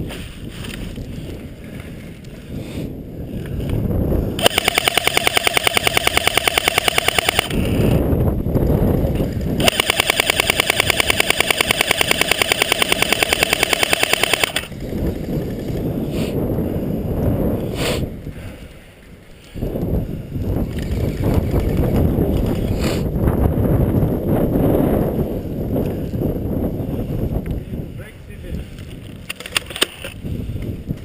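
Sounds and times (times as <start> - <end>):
wind on microphone: 0.0 - 31.0
airsoft rifle bursts: 4.4 - 7.8, 9.6 - 14.7
sharp crack: 4.4 - 7.8, 9.6 - 14.7.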